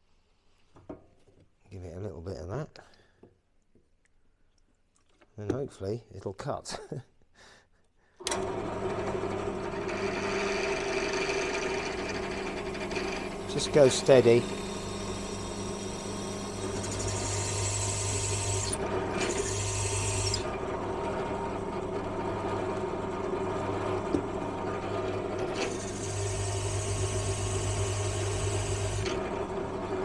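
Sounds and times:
drill motor hum: 8.3 - 30.0
hole saw grinding through metal: 9.8 - 20.6, 25.1 - 29.3.

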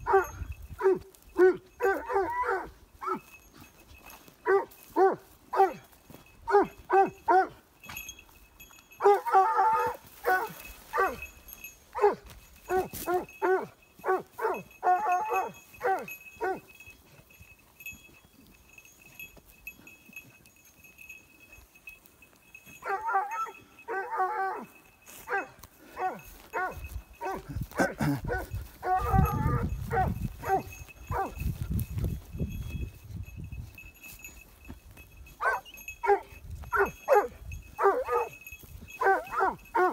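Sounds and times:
dog yelping and whining: 0.1 - 3.2, 9.0 - 11.2, 12.0 - 16.6, 22.8 - 24.7, 25.3 - 31.3, 35.4 - 38.4.

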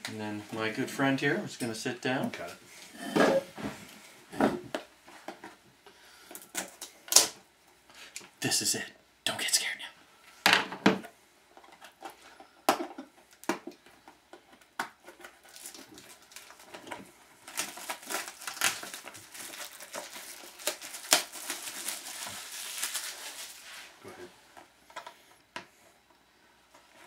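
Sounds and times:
packaging clicks and rips: 15.0 - 23.6
wrapping crinkling: 15.0 - 24.0.

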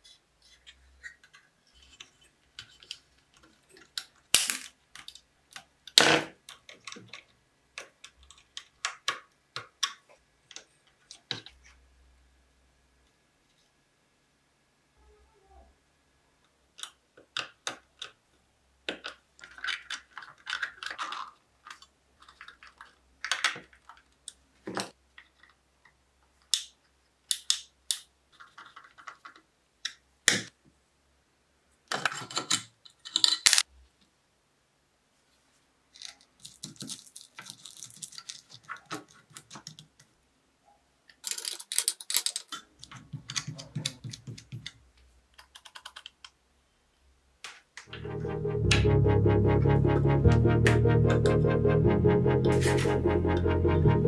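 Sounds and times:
metal parts and tools clicking: 41.2 - 43.6.

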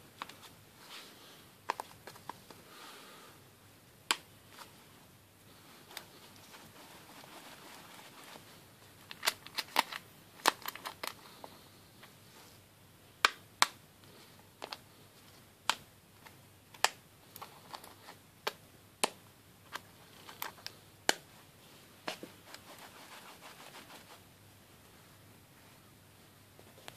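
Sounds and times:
soft rustling: 0.1 - 3.2, 4.4 - 10.0, 19.7 - 26.9.

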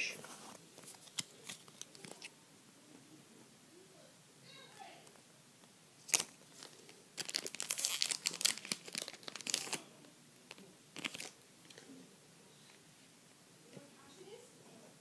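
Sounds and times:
foil wrapper crinkling: 6.1 - 9.8, 11.0 - 11.4.

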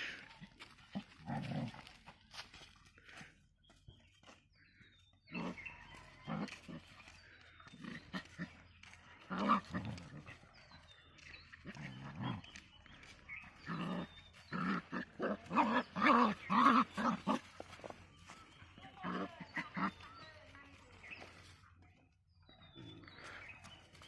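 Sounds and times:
puppies growling and barking: 0.0 - 2.2, 5.2 - 20.2.

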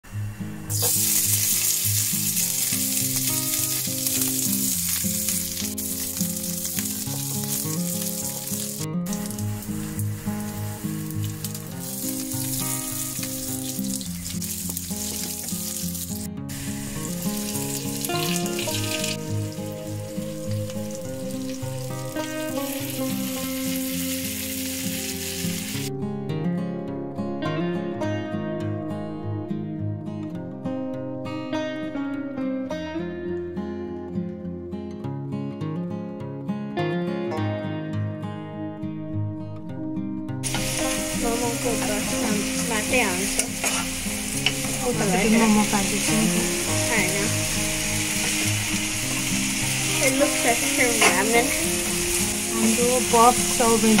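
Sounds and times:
background music: 0.0 - 54.0
meat sizzling in hot oil: 0.7 - 25.9, 40.4 - 54.0.

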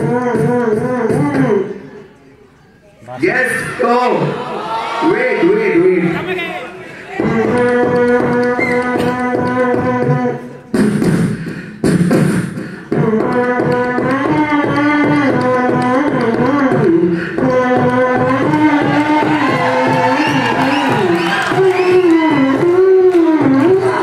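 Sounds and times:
person humming into a microphone: 0.0 - 1.6, 7.2 - 11.2, 11.9 - 24.0
mouth percussion beat: 0.0 - 1.7, 7.0 - 24.0.

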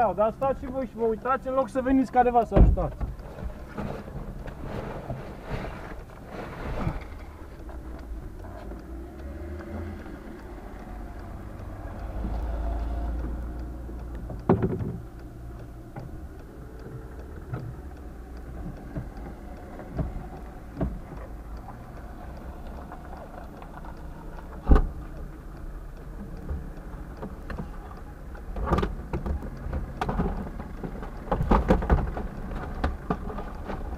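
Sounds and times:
car bonnet knocking and clunking: 2.5 - 4.3, 14.5 - 15.0.

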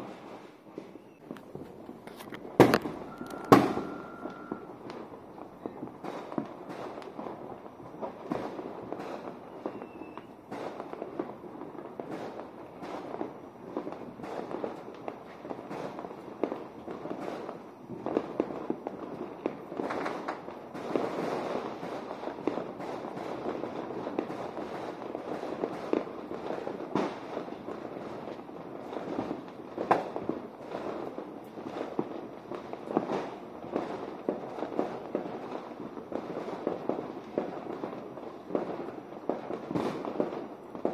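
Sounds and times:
sharp firecracker bangs: 0.0 - 16.0, 36.1 - 40.9
fireworks crackling and popping: 0.0 - 40.9.

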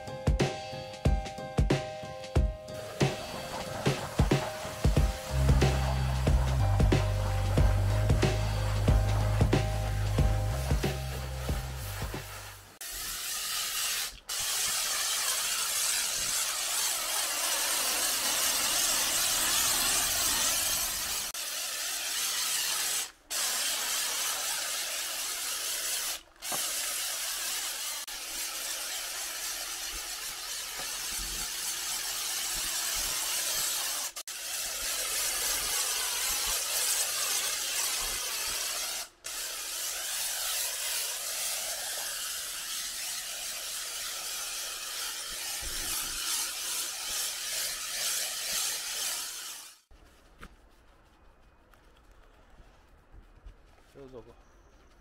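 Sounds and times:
pressure washer spraying water: 0.0 - 49.9.

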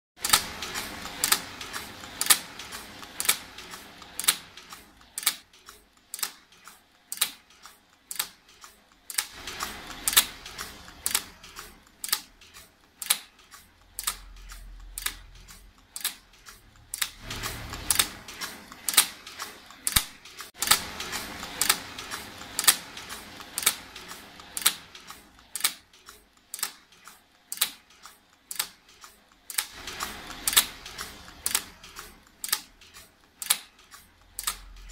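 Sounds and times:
machine mechanism clacking: 0.2 - 34.9.

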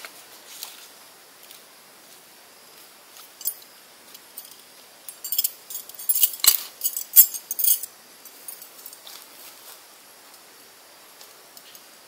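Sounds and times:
metal objects clinking and rattling: 3.4 - 3.6, 4.4 - 9.0.

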